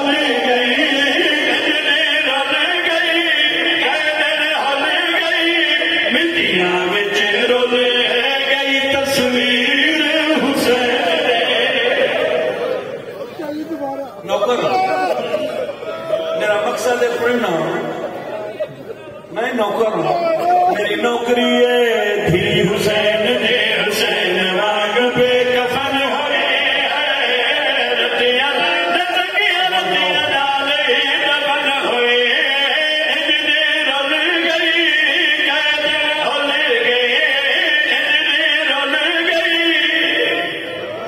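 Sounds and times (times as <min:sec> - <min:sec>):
men chanting into microphones: 0:00.0 - 0:13.2, 0:20.0 - 0:41.0.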